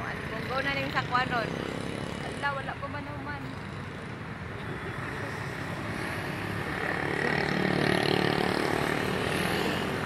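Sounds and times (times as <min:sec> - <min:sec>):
motor scooters passing: 0:00.0 - 0:10.0.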